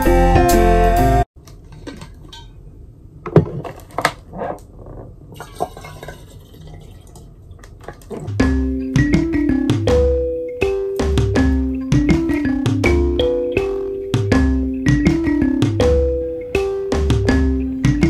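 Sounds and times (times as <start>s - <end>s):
background music: 0.0s - 1.3s, 8.3s - 18.0s
water pouring into bottle: 5.7s - 8.3s.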